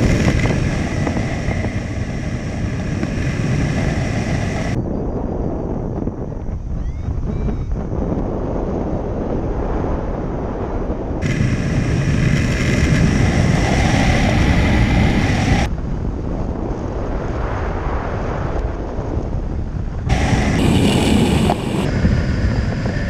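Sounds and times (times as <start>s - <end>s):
wind rushing over microphone: 0.0s - 23.0s.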